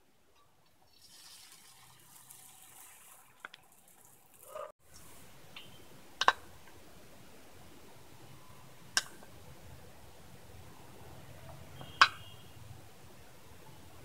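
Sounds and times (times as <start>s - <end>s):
batter sizzling on a griddle: 0.9s - 4.6s.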